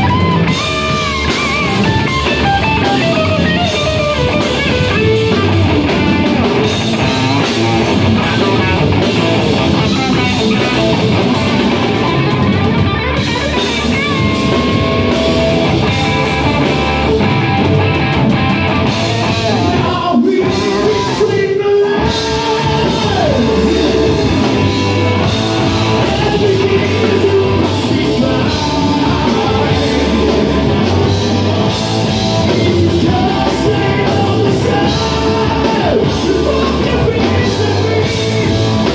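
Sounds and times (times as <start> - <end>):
bass guitar: 0.0 - 38.9
distorted electric guitar: 0.0 - 38.9
drums: 0.0 - 38.9
person singing: 18.9 - 31.3, 32.4 - 38.9.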